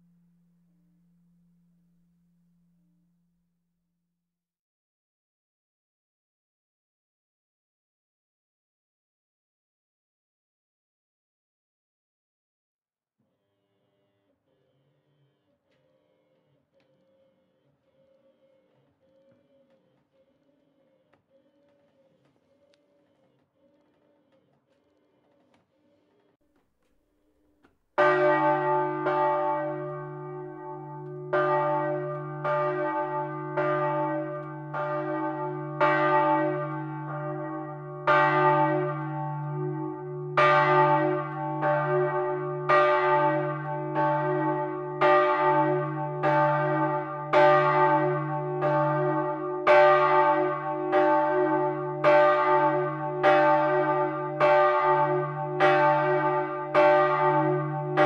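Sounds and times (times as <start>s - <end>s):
church bell ringing: 28.0s - 58.0s.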